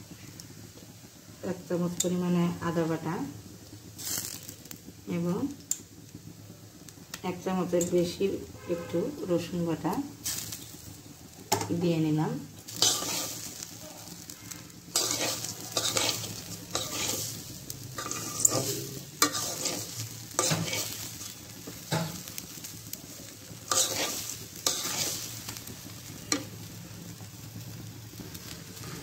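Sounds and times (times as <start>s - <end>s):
oil sizzling: 0.0s - 29.0s
metal spatula scraping rice: 12.7s - 26.5s, 28.4s - 29.0s.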